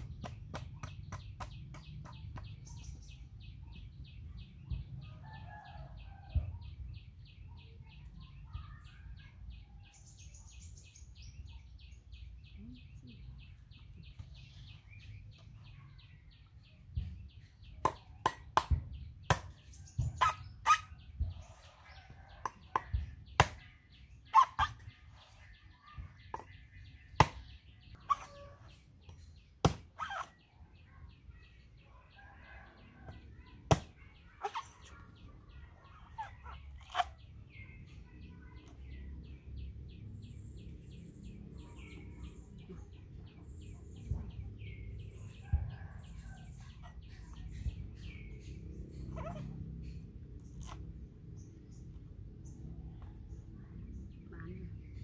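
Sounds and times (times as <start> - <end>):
cleaver chopping coconut husk: 0.0 - 2.6, 17.8 - 20.2, 22.4 - 23.6, 27.1 - 27.5, 29.6 - 30.4, 33.7 - 34.0.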